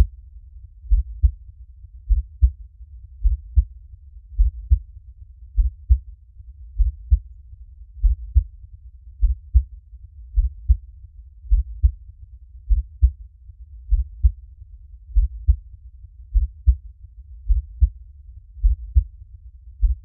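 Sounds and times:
faint low rumble: 0:00.0 - 0:20.0
heartbeat thumps: 0:00.9 - 0:01.4, 0:02.1 - 0:02.6, 0:03.2 - 0:03.7, 0:04.4 - 0:04.8, 0:05.6 - 0:06.0, 0:06.8 - 0:07.2, 0:08.0 - 0:08.5, 0:09.2 - 0:09.7, 0:10.4 - 0:10.8, 0:11.5 - 0:12.0, 0:12.7 - 0:13.2, 0:13.9 - 0:14.4, 0:15.1 - 0:15.6, 0:16.3 - 0:16.8, 0:17.5 - 0:18.0, 0:18.6 - 0:19.1, 0:19.8 - 0:20.0.

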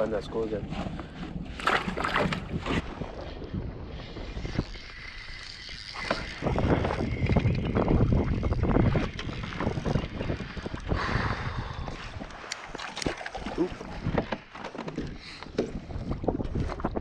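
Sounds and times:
wind buffeting microphone: 0:00.0 - 0:17.0
fishing reel clicks: 0:04.5 - 0:09.4.

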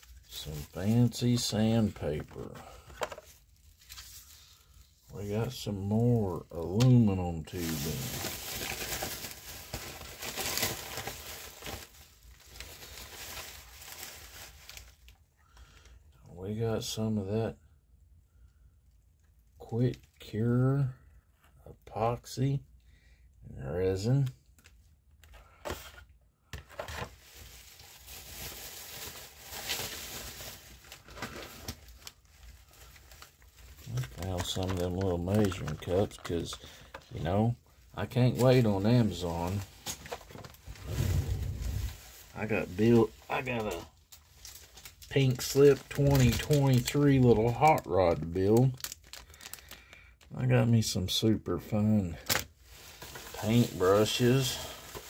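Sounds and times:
plastic packaging crinkling: 0:00.0 - 0:15.7, 0:26.7 - 0:37.4, 0:38.0 - 0:50.3, 0:52.2 - 0:55.0.

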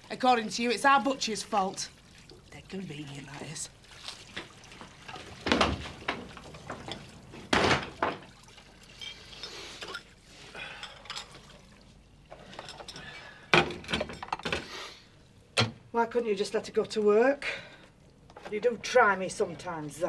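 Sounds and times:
dishes and cutlery clattering: 0:05.1 - 0:08.3, 0:08.9 - 0:10.2, 0:10.8 - 0:11.5, 0:12.3 - 0:14.6.

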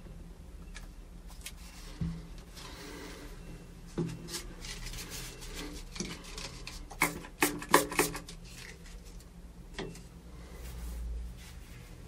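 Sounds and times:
soft rustling: 0:10.5 - 0:12.0.

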